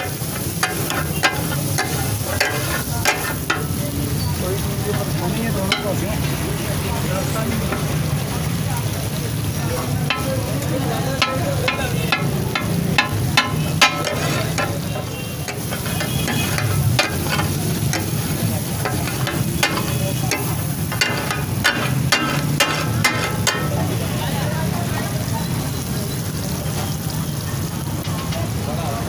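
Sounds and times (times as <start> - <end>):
metal spatulas clattering on a griddle: 0.0 - 4.0, 4.8 - 6.3, 7.5 - 8.0, 10.0 - 24.0
sizzling oil: 0.0 - 29.0.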